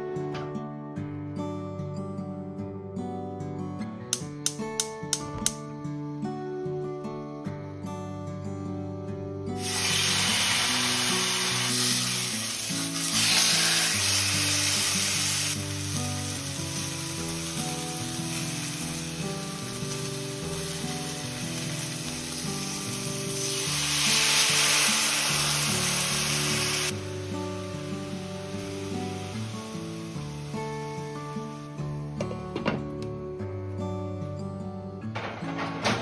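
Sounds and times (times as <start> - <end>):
soft background music: 0.0 - 36.0
wine poured into hot pan: 9.6 - 27.1
meat sizzling in a frying pan: 9.6 - 31.7.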